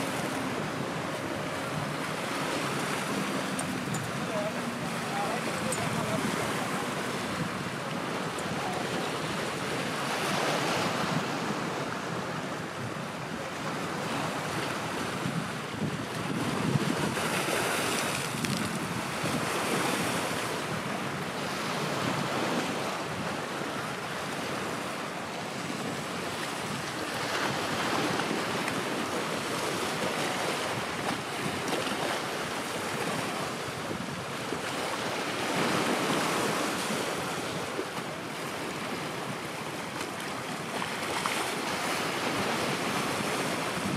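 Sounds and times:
wind buffeting microphone: 0.0s - 37.8s, 38.7s - 43.9s
sea waves washing: 0.0s - 43.9s.

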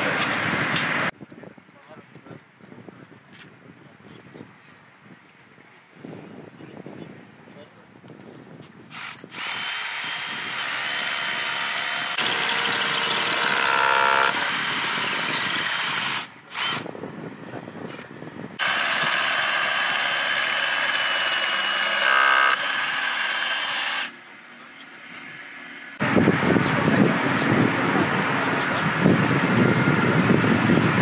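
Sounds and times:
cordless drill whining: 8.9s - 16.9s, 18.6s - 24.2s.

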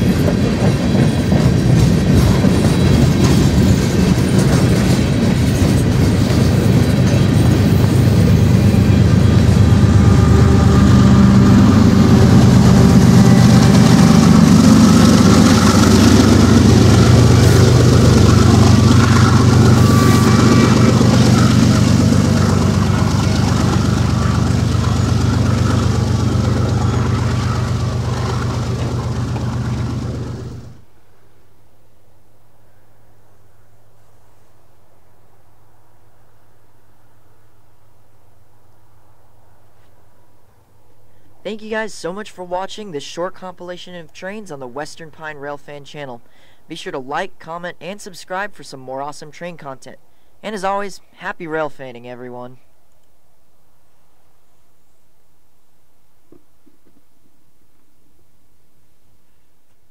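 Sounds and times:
train wheels clattering on rails: 0.0s - 30.8s
diesel locomotive engines: 0.0s - 31.0s.

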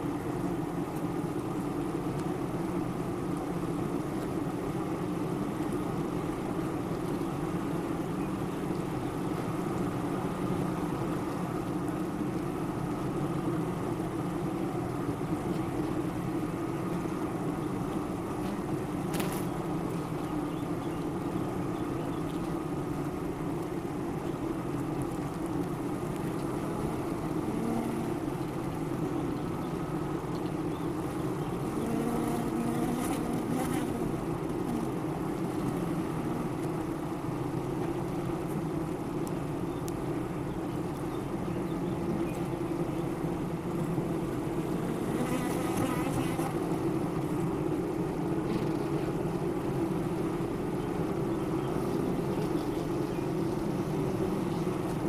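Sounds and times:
honeybees buzzing: 26.2s - 29.1s, 30.7s - 37.2s, 41.6s - 55.0s.

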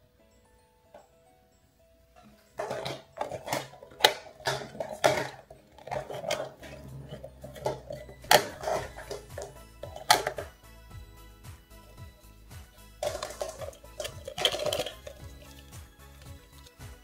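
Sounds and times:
plastic capsules clacking: 2.6s - 10.6s, 13.0s - 16.8s.

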